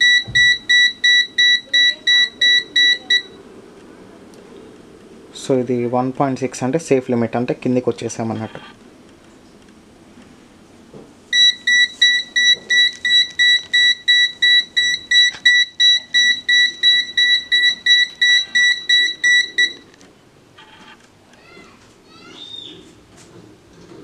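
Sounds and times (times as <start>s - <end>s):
gas detector beeping rapidly: 0.0s - 3.4s, 11.4s - 19.8s.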